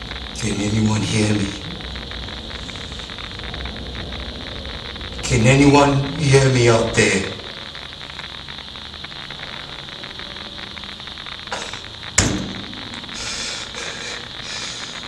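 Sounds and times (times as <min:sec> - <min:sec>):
radio static hiss: 0:00.0 - 0:15.0
thin high whine: 0:00.0 - 0:15.0
sharp knock: 0:11.6 - 0:13.8.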